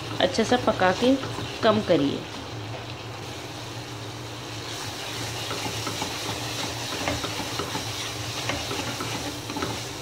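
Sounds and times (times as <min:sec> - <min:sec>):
milk mixture sizzling in a pan: 0:00.0 - 0:10.0
wooden spatula scraping a pan: 0:04.7 - 0:10.0.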